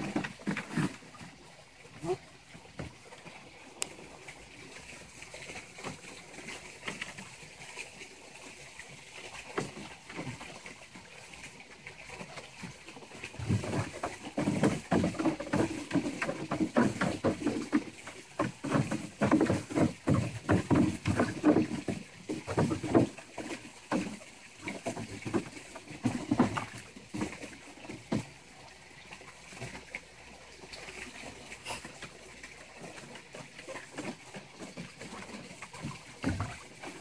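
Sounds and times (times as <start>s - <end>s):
water splashing in a pool: 0.0s - 37.0s.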